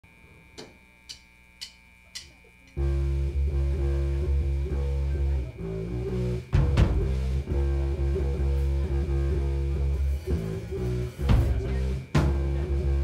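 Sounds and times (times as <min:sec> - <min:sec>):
bass guitar riff: 0:02.8 - 0:13.0.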